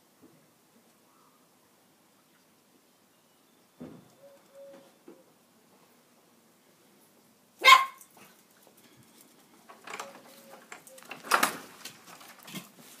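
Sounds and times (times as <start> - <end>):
dog barking: 7.6 - 8.1
clattering and rustling: 8.2 - 13.0.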